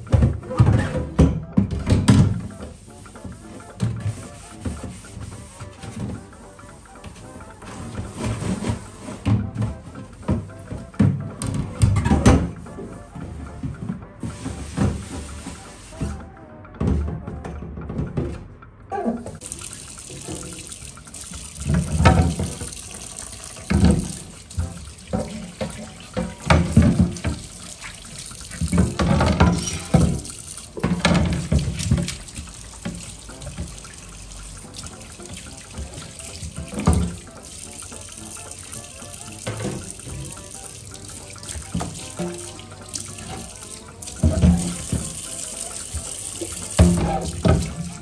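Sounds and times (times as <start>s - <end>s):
tap running into a steel sink: 19.4s - 48.0s
water splashing off glass shelf: 19.4s - 48.0s.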